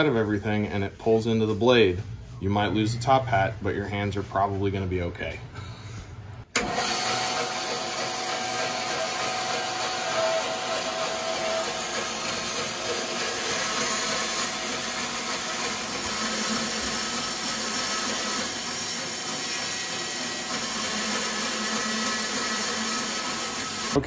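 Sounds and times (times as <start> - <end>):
bandsaw cutting rubber: 6.6 - 24.0.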